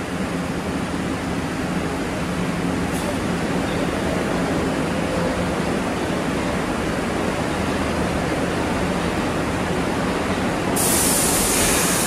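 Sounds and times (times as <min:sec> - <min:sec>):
subway train rumbling: 0:00.0 - 0:12.0
high hiss: 0:10.8 - 0:12.0.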